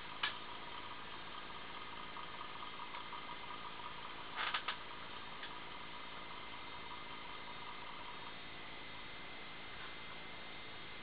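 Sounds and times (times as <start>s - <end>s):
computer hardware humming: 0.0s - 11.0s.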